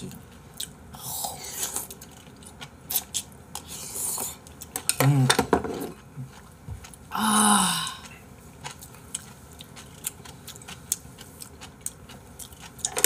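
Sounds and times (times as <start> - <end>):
rustling and scraping at table: 5.3 - 6.0.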